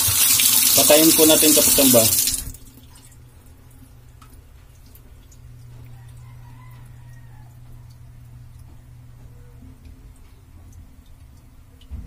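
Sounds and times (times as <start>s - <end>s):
water running from faucet: 0.0s - 3.2s
low steady hum: 1.6s - 12.0s.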